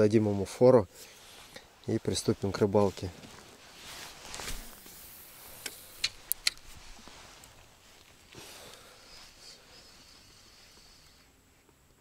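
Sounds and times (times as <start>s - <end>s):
faint hiss: 0.0s - 12.0s
sharp clicks of fishing gear: 4.5s - 6.8s.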